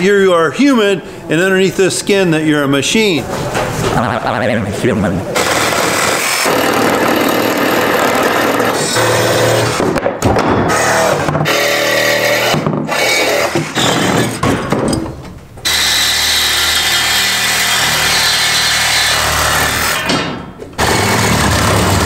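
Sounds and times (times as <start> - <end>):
power tool cutting steel pipes: 5.4 - 9.8, 10.7 - 14.4, 15.6 - 20.1, 20.8 - 22.0.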